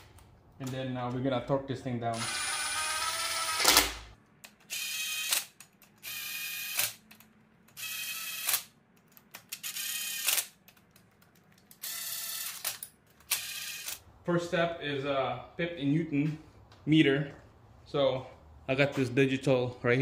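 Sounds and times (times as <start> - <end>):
impact driver whirring and hammering: 2.2 - 4.1.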